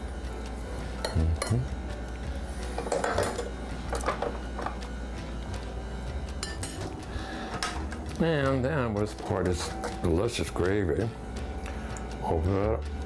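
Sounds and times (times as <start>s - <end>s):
steady low hum: 0.0s - 13.0s
utensil clinking on crockery: 2.8s - 4.8s.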